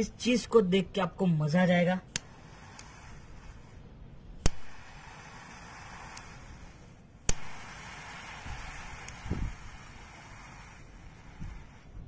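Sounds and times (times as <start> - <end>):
faint hiss: 0.0 - 12.0
gas lighter clicking: 8.8 - 9.5.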